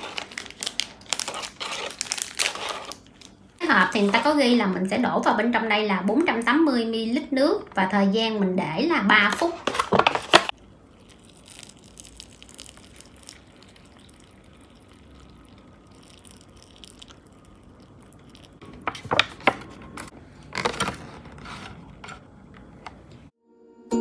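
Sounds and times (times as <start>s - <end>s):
packet rustling: 0.0s - 4.3s.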